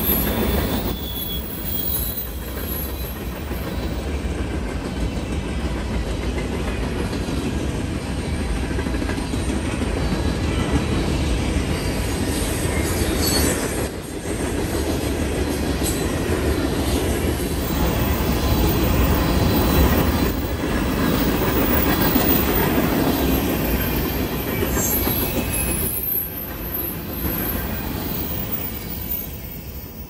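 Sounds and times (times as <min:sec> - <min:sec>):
high wheel squeals: 0:00.0 - 0:04.0, 0:17.6 - 0:30.0
train wheels rumbling on rail: 0:00.0 - 0:30.0.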